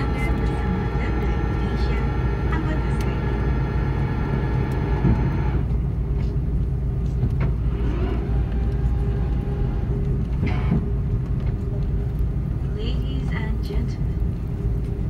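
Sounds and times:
airliner cabin low rumble: 0:00.0 - 0:15.0.

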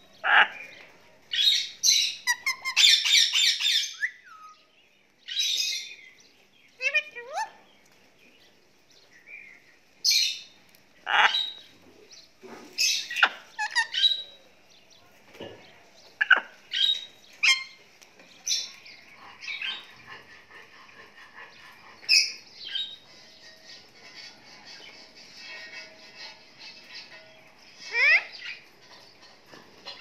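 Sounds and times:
parrot chirps and squawks: 0:01.3 - 0:04.6, 0:06.8 - 0:07.7, 0:10.1 - 0:11.7, 0:12.8 - 0:14.4, 0:16.2 - 0:17.8, 0:18.4 - 0:28.7, 0:29.8 - 0:30.0.

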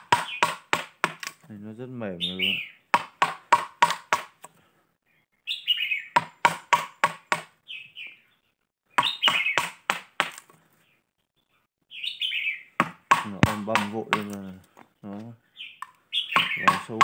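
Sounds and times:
bird chirps: 0:02.1 - 0:02.9, 0:05.0 - 0:06.5, 0:07.2 - 0:09.6, 0:10.7 - 0:12.8, 0:14.5 - 0:17.0.

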